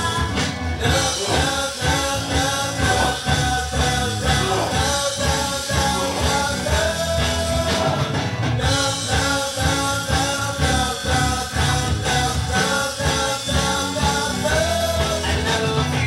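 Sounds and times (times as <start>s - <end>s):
rock-style pop song with vocals: 0.0s - 16.0s.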